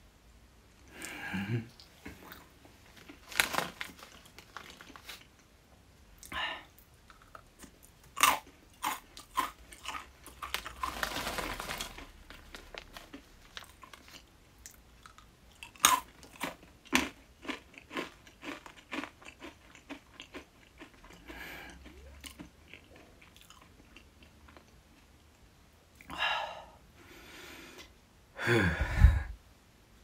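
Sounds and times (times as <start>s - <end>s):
crunchy snack chewing: 2.1s - 5.4s, 7.0s - 24.7s.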